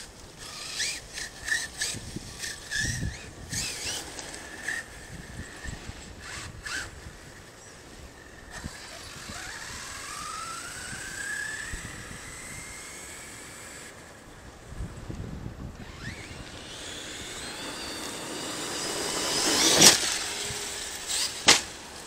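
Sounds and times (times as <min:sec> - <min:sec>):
rc truck motor whining: 0:00.0 - 0:14.3, 0:15.7 - 0:22.0.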